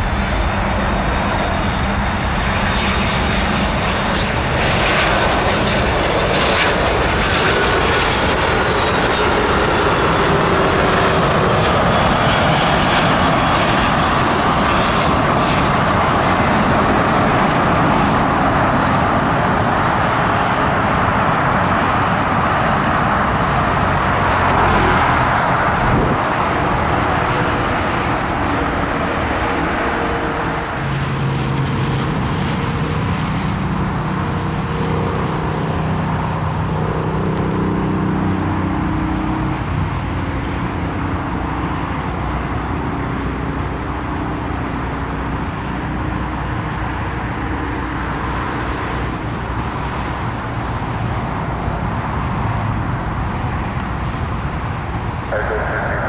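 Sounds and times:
jet engines roaring: 0.0 - 56.0
high whine falling in pitch: 55.3 - 56.0.

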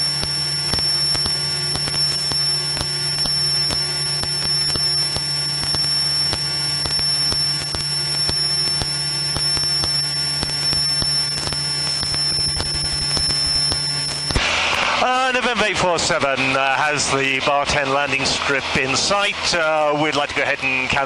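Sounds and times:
faint crackles: 0.0 - 15.0
high-pitched whine: 0.0 - 21.0.

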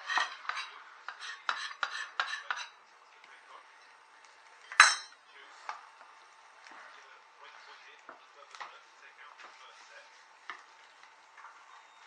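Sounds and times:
utensil scraping a bowl: 0.0 - 2.8.

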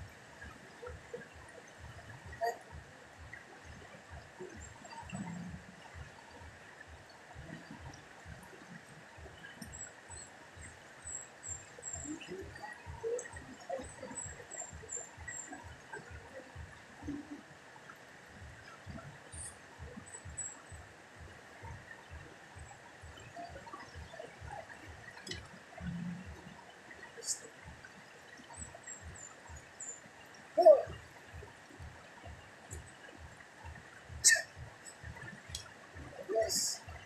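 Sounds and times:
faint high chirps: 7.4 - 17.6, 18.6 - 31.3.

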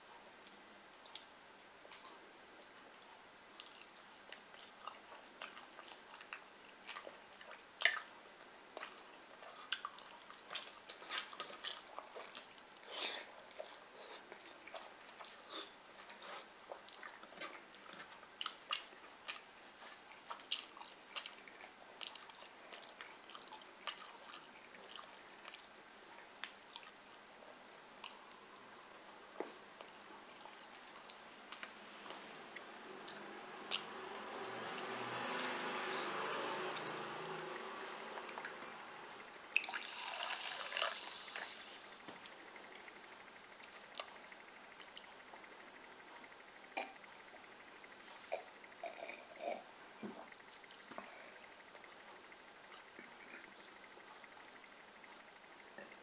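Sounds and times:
person chewing food: 0.3 - 42.9.

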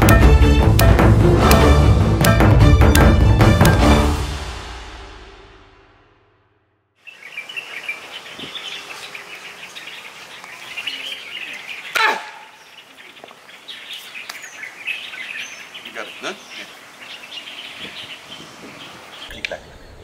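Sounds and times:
birds chirping: 7.0 - 20.0.

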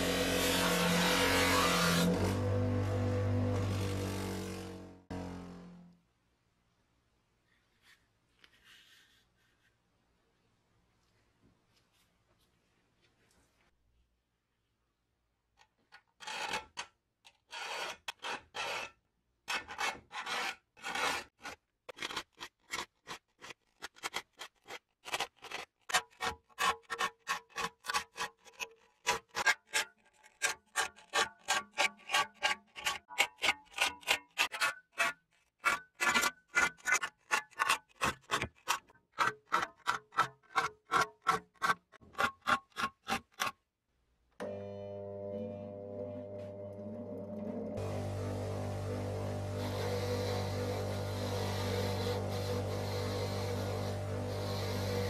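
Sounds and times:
hand file strokes: 49.6 - 55.0.

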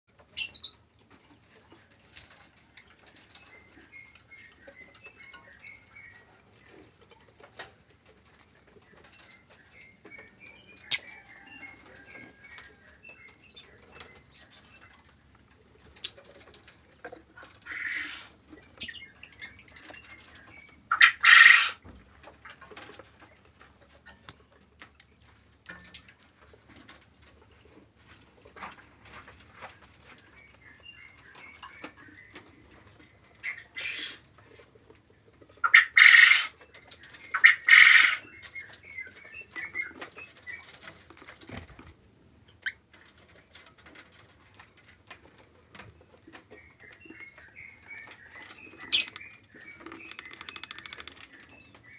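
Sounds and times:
birds chirping: 0.1 - 24.6, 25.2 - 51.9
wings flapping: 40.6 - 42.0.

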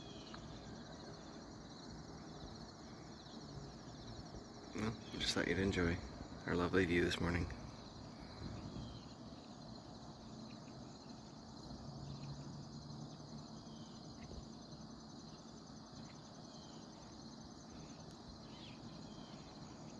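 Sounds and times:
crickets trilling: 0.0 - 19.9.

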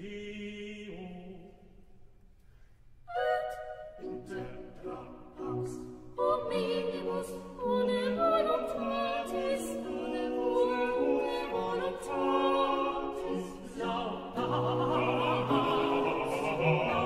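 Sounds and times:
choir singing sacred music: 0.0 - 1.8, 3.1 - 17.0.

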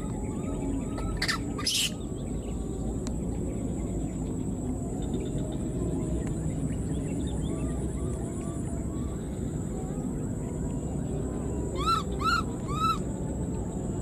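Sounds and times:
faint chirps: 0.0 - 2.9
high-pitched whine: 0.0 - 14.0.

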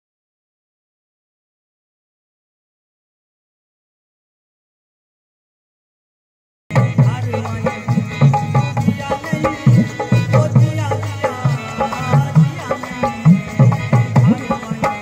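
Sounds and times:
folk music with hand drums: 6.7 - 15.0.

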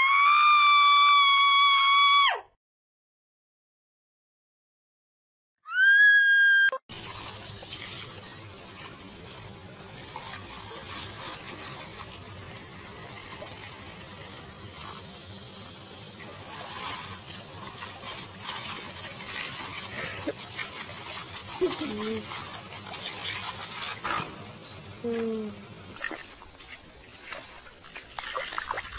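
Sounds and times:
water jet spraying on lawn: 6.9 - 28.9
dog biting at water splashes: 26.0 - 28.9.

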